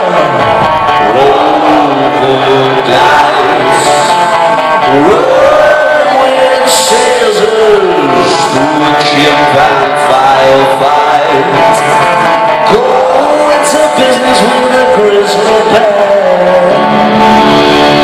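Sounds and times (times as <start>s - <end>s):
drums: 0.0s - 18.0s
electric guitar: 0.0s - 18.0s
man singing: 0.0s - 18.0s.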